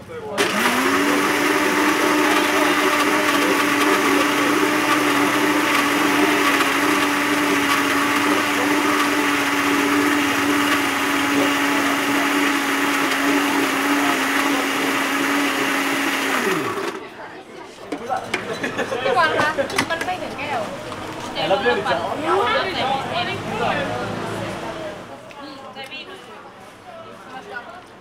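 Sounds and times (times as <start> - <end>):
electric blender running: 0.4 - 17.0.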